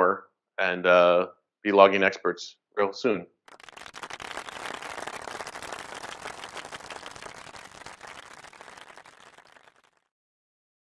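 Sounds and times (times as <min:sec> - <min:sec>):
audience applauding: 0:03.5 - 0:10.1.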